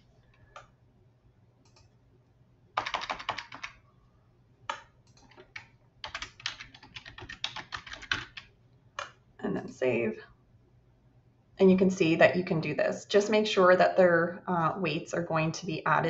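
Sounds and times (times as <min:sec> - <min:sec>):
computer keyboard typing: 0:02.8 - 0:03.8, 0:04.7 - 0:09.2.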